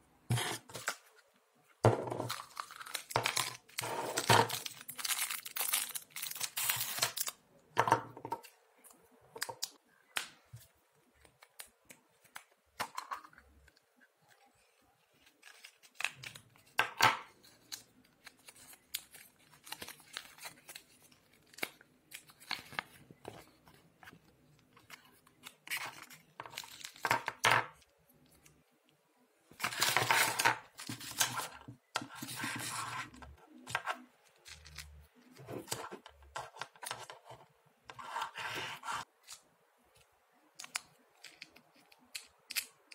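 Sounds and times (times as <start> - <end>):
paper crinkling and tearing: 2.2 - 7.3.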